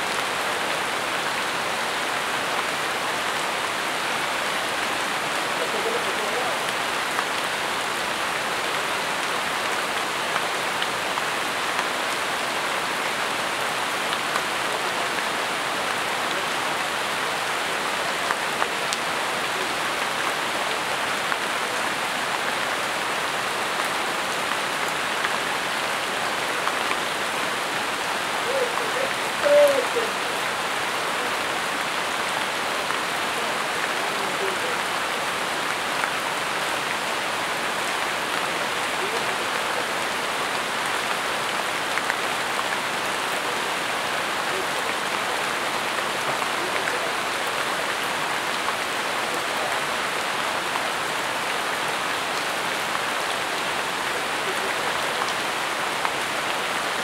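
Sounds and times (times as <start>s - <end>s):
rain on foliage: 0.0s - 57.0s
wavering animal call: 28.4s - 30.4s.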